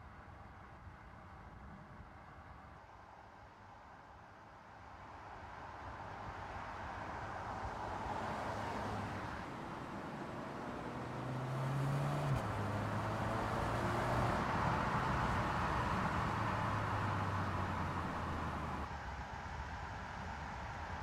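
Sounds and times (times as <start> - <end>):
tyre and road noise: 7.8 - 18.9
car engine driving by: 8.0 - 18.9.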